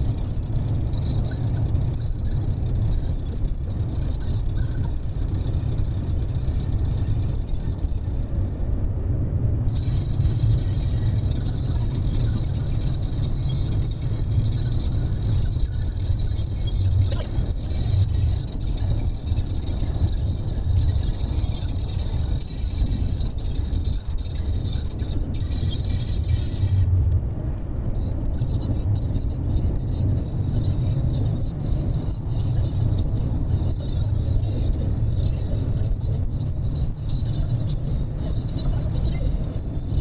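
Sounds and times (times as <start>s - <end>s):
car road rumble: 0.0s - 40.0s.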